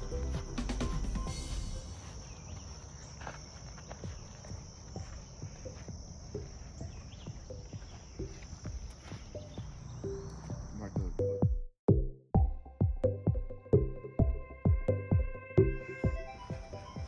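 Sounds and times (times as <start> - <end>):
high-pitched insect chorus: 0.0 - 11.3
soft low thumps: 3.9 - 17.0.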